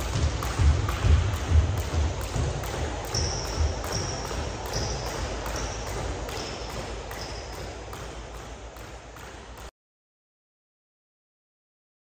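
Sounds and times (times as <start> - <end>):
high ping: 0.0 - 9.4
jump rope slapping the floor: 0.0 - 9.7.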